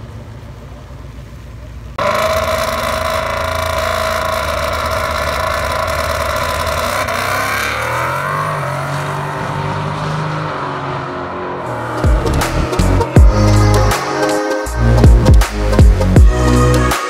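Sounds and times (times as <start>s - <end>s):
car engine revving high: 2.0s - 14.0s.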